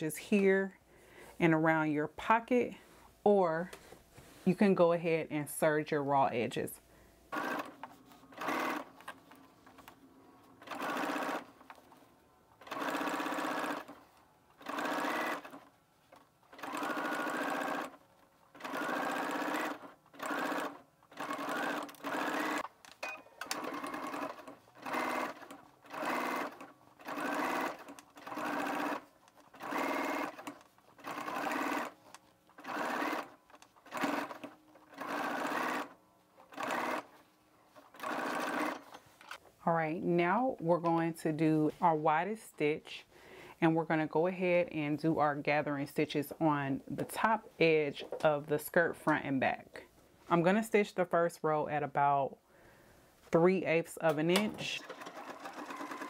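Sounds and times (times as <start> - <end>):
electric sewing machine stitching: 7.3 - 9.4, 10.6 - 11.8, 12.6 - 15.8, 16.5 - 37.2, 37.8 - 39.0, 54.1 - 56.0.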